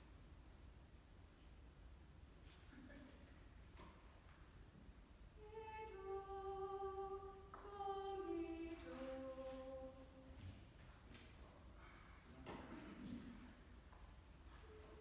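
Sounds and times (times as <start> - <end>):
choir singing unaccompanied: 5.4 - 10.4.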